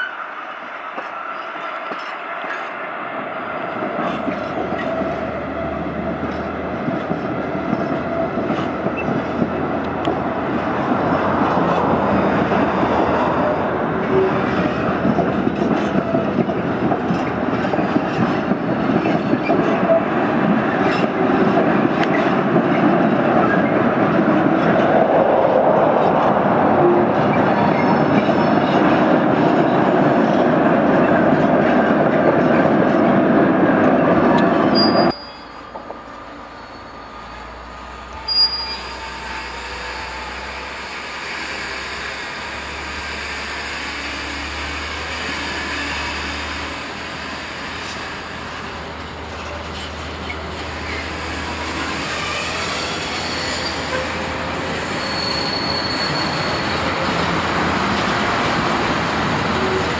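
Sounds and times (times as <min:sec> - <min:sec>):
diesel locomotive engine hum: 0:00.0 - 0:59.9
train wheels rumbling on rail: 0:00.0 - 0:59.9
faint wheel squeal: 0:34.6 - 0:35.8, 0:36.4 - 0:39.6, 0:52.2 - 0:57.1.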